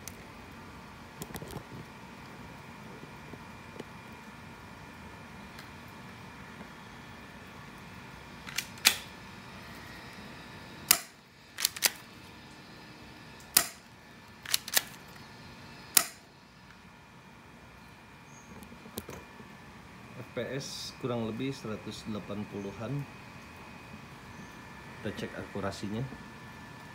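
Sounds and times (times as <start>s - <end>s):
airsoft pistol shots: 13.6s - 13.8s, 16.0s - 16.2s.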